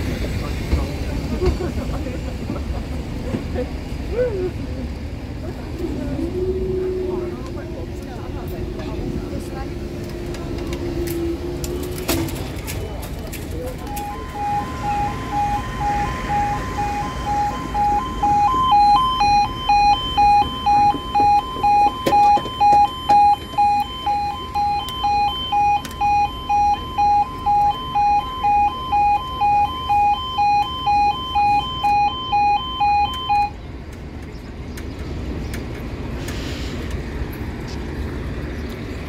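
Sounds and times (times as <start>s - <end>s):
level crossing alarm: 13.8s - 33.6s.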